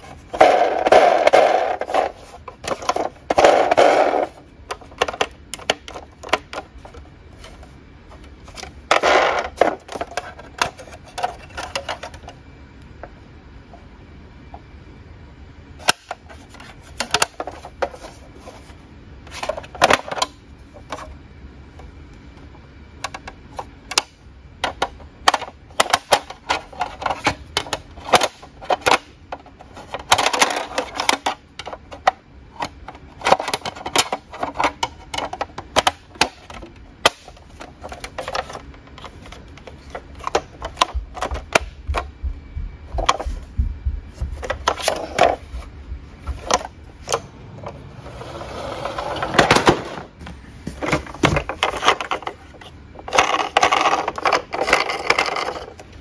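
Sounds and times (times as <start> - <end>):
plastic toys clattering in a box: 0.0 - 7.5, 8.4 - 12.4, 24.6 - 42.0, 50.8 - 55.8.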